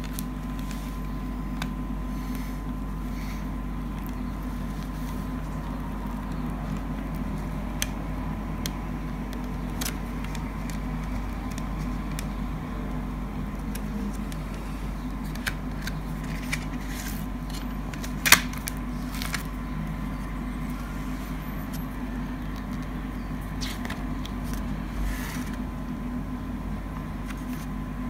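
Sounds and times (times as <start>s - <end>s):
steady low hum: 0.0s - 28.0s
plastic case clicks and rustles: 15.2s - 19.5s.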